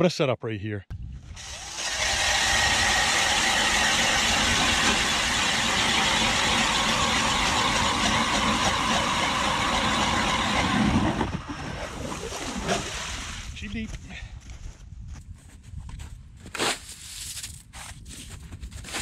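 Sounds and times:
ice auger drilling through ice: 1.4 - 13.4.

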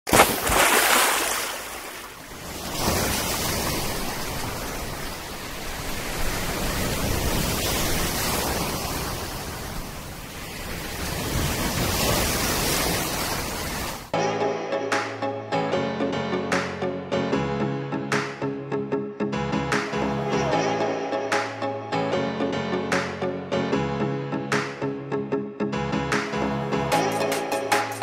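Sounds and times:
sea waves breaking on shore: 0.1 - 14.2
music: 14.1 - 28.0.

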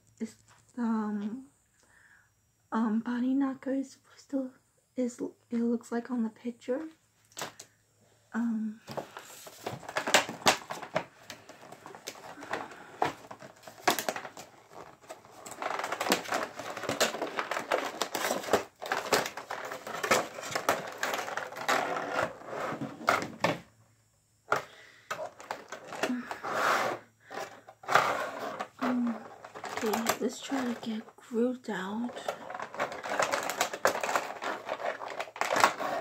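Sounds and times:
plastic packaging crinkling: 8.9 - 23.6, 24.5 - 36.0.

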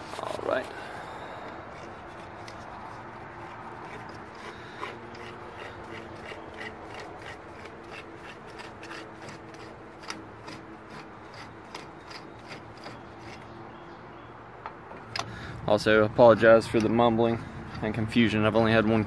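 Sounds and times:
metal rubbing: 1.5 - 13.6.

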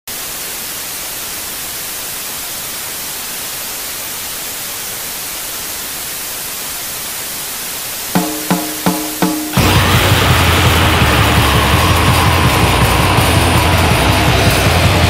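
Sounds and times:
television static hiss: 0.1 - 8.2.

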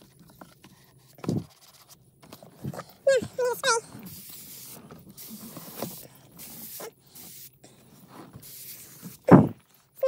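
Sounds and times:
short hissing strokes: 3.7 - 10.0.

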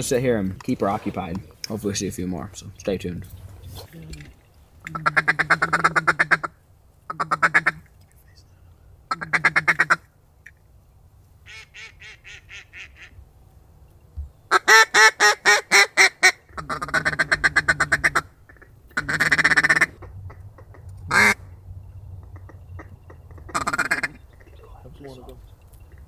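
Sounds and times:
chattering feed call: 3.6 - 6.5, 11.5 - 13.2, 22.1 - 26.0
duck call quacks: 4.9 - 6.5, 7.1 - 7.9, 9.1 - 10.1, 11.5 - 13.2, 14.5 - 21.4, 22.4 - 24.2.

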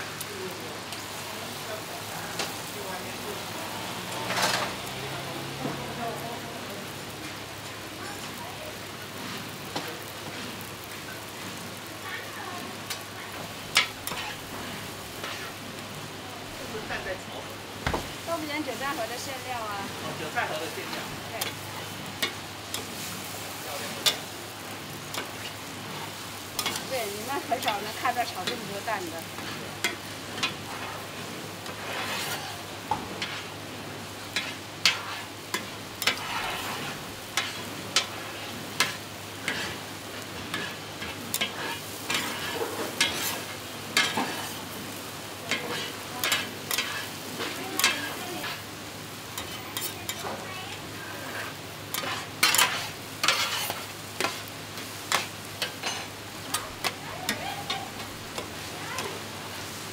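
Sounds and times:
eggs sizzling in pans: 0.0 - 59.9
metal spatula scraping pan: 4.2 - 4.8, 12.9 - 15.6, 26.6 - 33.5, 34.3 - 44.6, 45.5 - 48.6, 49.4 - 50.4, 51.0 - 59.1.

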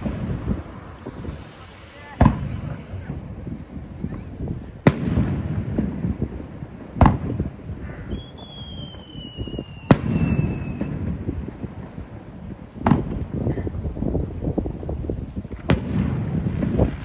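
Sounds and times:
firework shells bursting: 0.0 - 13.8
whistling firework shell: 7.8 - 11.2.

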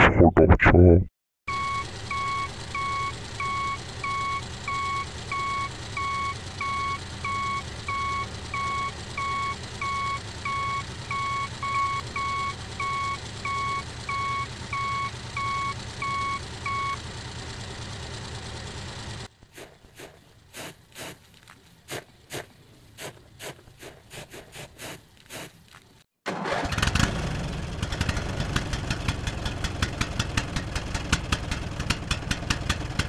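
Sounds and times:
vehicle reversing alarm beeping: 1.5 - 17.0
low engine hum: 1.5 - 26.1.

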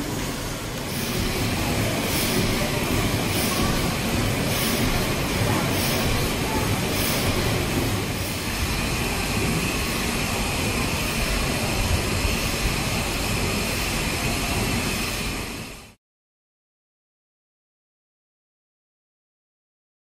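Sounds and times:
steam engine running: 0.0 - 16.0.

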